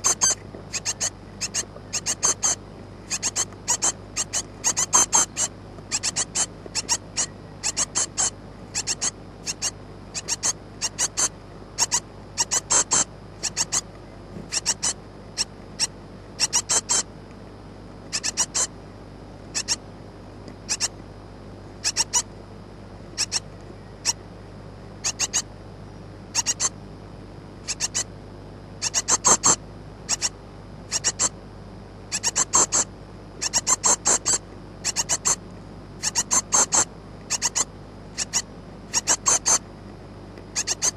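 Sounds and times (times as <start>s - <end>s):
nestlings begging calls: 0.0s - 13.9s, 14.5s - 17.1s, 18.1s - 18.8s, 19.5s - 19.8s, 20.6s - 20.9s, 21.8s - 22.3s, 23.1s - 24.2s, 25.0s - 25.5s, 26.3s - 26.8s, 27.6s - 28.2s, 28.8s - 31.4s, 32.1s - 35.4s, 36.0s - 39.7s, 40.5s - 40.9s.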